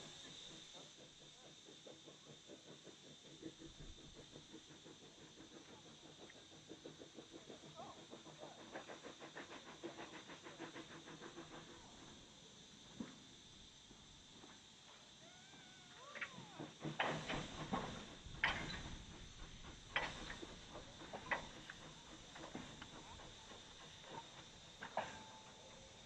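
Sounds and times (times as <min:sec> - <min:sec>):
steam locomotive exhaust chuffing: 0:00.0 - 0:26.0.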